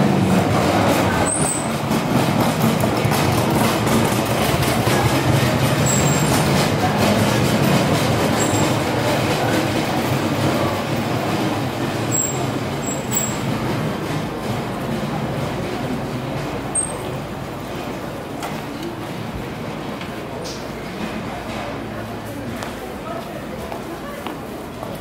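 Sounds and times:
train rumbling: 0:00.0 - 0:25.0.

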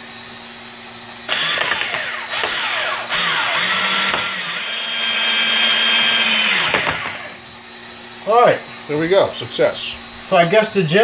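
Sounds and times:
power drill driving screw into wood: 0:01.3 - 0:07.4.

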